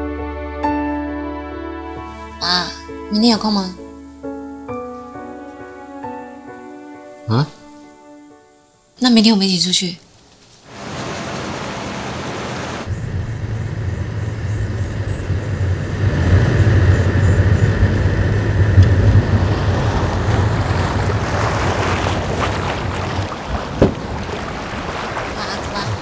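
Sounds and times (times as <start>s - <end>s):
car road and wind noise: 10.7s - 26.0s.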